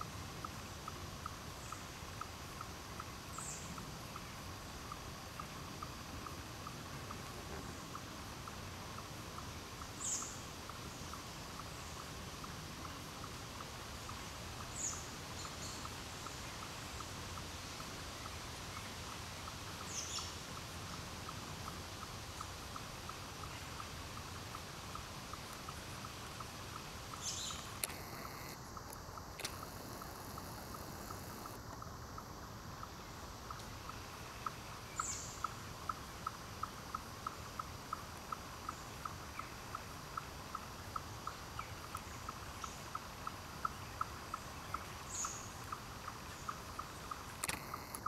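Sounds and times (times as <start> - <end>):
faint ticks: 0.0 - 48.0
soft steady hiss: 0.0 - 48.0
faint regular ticking: 21.2 - 39.1, 45.6 - 48.0
sharp clicks: 27.6 - 31.9, 47.4 - 48.0.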